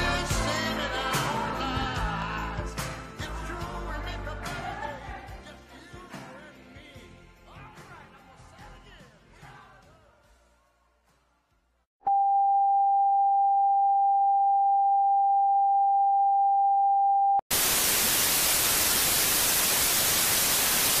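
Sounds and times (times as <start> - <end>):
music: 0.0 - 11.8
static hiss: 17.5 - 21.0.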